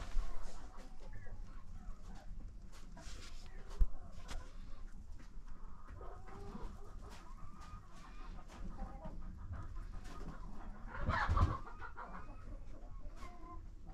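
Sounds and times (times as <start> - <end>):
turkey hen clucking: 5.4 - 13.7.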